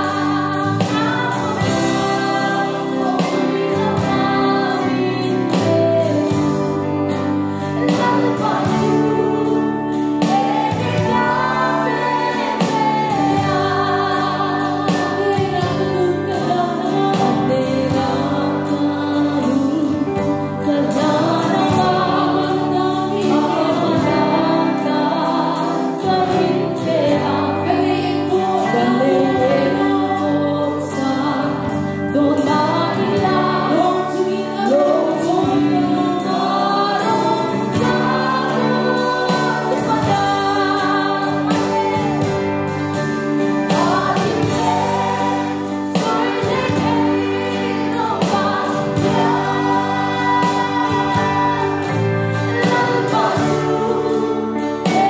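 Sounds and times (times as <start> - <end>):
backing singers: 0.0 - 55.0
band playing: 0.0 - 55.0
woman singing into a microphone: 0.0 - 55.0.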